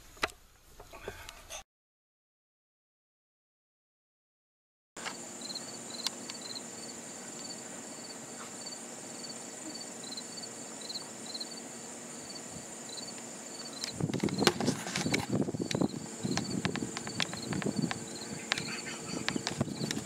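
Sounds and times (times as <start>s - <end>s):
insects chirping: 5.0s - 20.0s
steady high insect buzz: 5.0s - 20.0s
footsteps on paved road: 13.9s - 20.0s.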